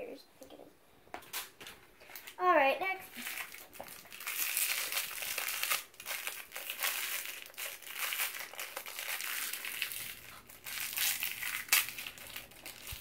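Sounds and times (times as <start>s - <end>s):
wrapper crinkling: 3.0s - 13.0s.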